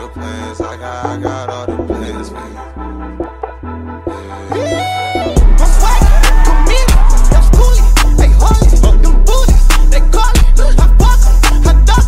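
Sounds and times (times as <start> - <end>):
hip hop music with heavy bass: 0.0 - 12.0.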